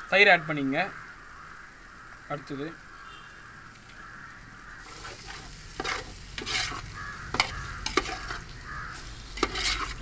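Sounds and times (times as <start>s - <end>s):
food sizzling: 3.6s - 10.0s
ladle stirring in pot: 4.8s - 10.0s.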